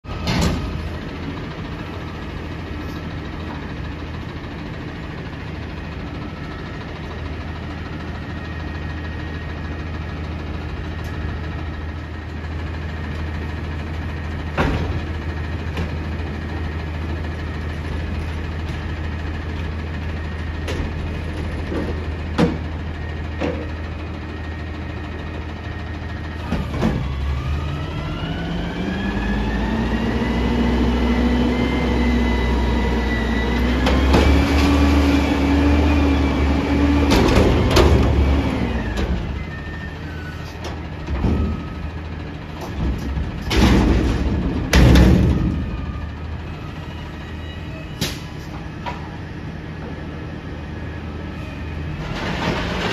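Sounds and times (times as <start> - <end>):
diesel truck engine idling: 0.1 - 52.0
truck engine revving: 26.3 - 40.2
dumpster knocking: 37.0 - 38.4, 42.6 - 45.9.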